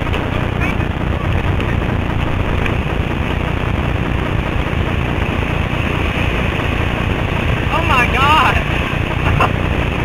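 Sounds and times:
whitewater rapids roaring: 0.0s - 10.0s.

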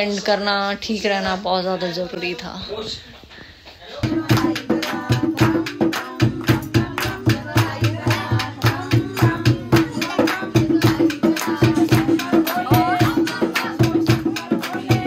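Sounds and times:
hand drum beat: 4.0s - 15.0s
other percussion: 4.0s - 15.0s
person singing: 4.0s - 15.0s.

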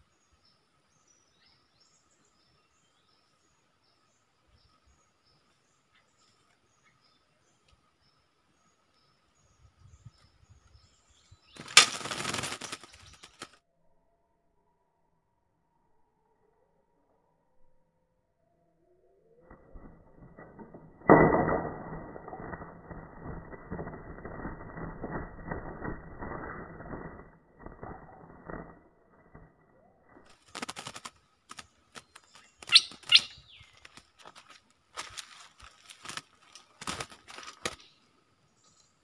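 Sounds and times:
bird chirps: 0.0s - 15.0s, 27.8s - 34.4s, 35.6s - 39.0s
bird wing flutter: 9.8s - 13.6s, 19.4s - 38.1s
wing flaps: 11.4s - 13.6s, 19.4s - 38.0s.

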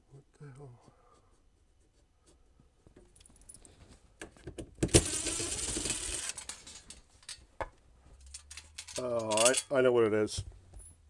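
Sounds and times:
cordless drill running: 4.9s - 6.4s
small metallic rattles: 8.2s - 9.8s.

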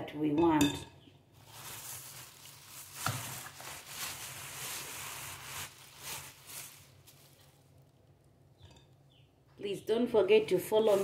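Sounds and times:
sieve rustling swishes: 1.4s - 7.5s, 10.6s - 11.0s.

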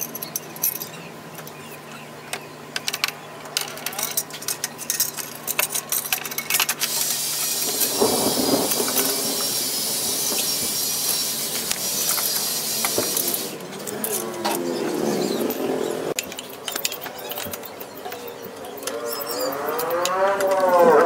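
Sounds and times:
steady hiss: 6.8s - 13.6s.

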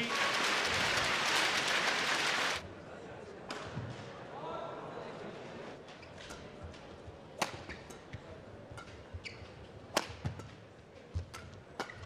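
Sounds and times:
rackets striking shuttlecock: 7.4s - 12.0s.

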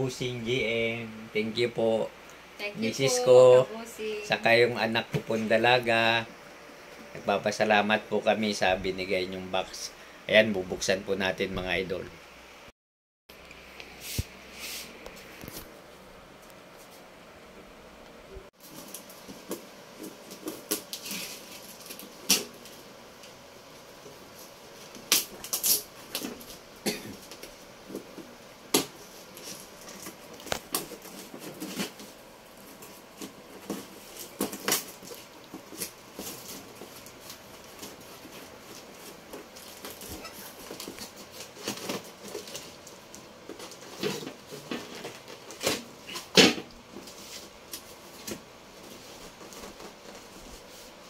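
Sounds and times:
tape and cardboard crinkling: 18.6s - 23.4s, 24.0s - 51.0s.

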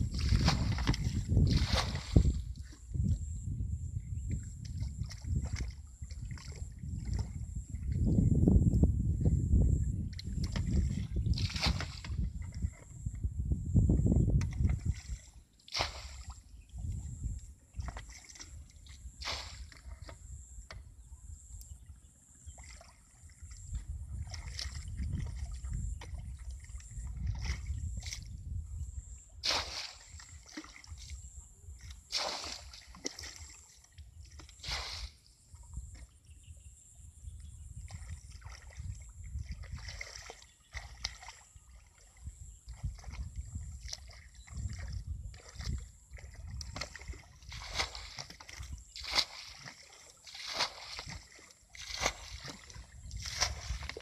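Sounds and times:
water splashing from bucket: 0.0s - 2.5s, 10.2s - 12.8s, 14.4s - 16.4s, 17.8s - 20.2s, 29.4s - 31.2s, 32.0s - 35.3s, 37.9s - 42.0s, 42.7s - 54.0s
steady low rumble: 0.0s - 14.9s.

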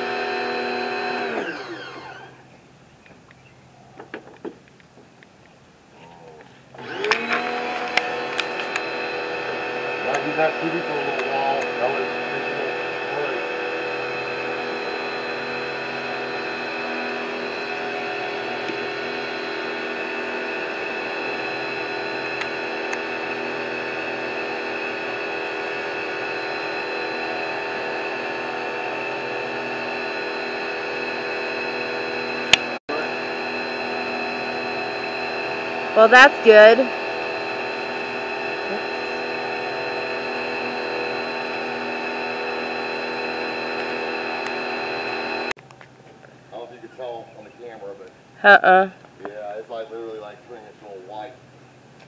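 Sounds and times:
pressure washer motor hum: 0.0s - 2.5s, 6.7s - 45.6s.

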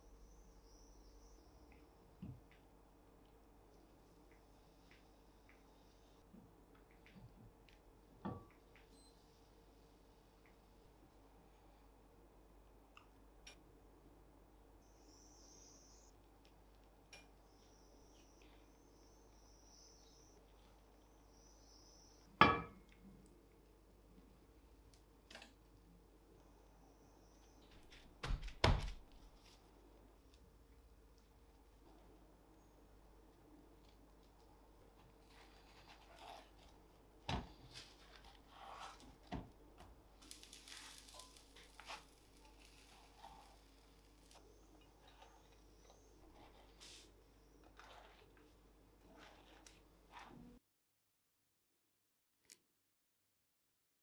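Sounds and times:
faint frying hiss: 0.0s - 28.3s, 29.1s - 50.6s
bread frying in a pan: 27.7s - 50.3s
soft scraping: 44.9s - 50.6s.

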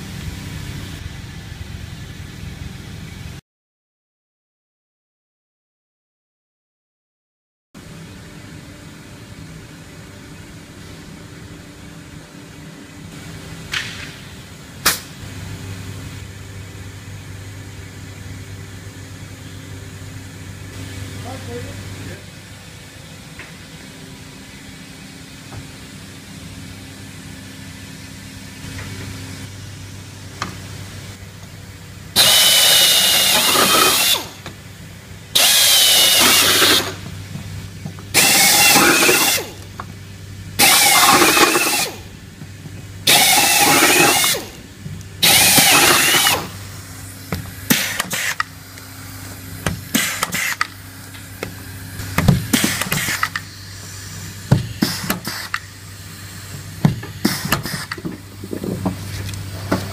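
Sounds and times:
pneumatic air drill whining: 32.1s - 34.6s, 35.3s - 37.2s, 38.1s - 39.6s, 40.6s - 42.1s, 43.0s - 48.6s, 49.3s - 58.7s.

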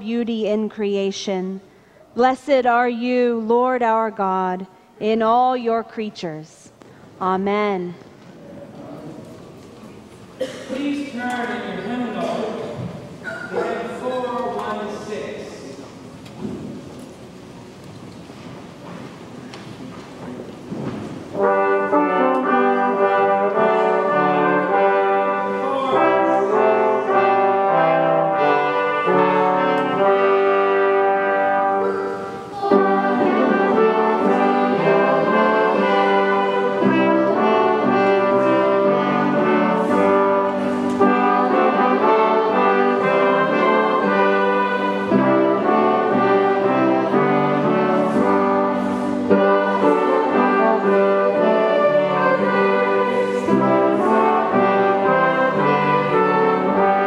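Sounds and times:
hymn in brass-like chords: 10.4s - 15.6s, 21.3s - 57.0s.

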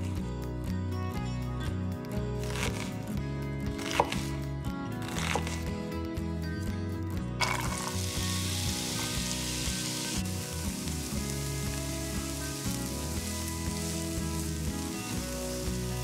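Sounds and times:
background music: 0.0s - 16.0s
onion sizzling in a pan: 7.4s - 16.0s.

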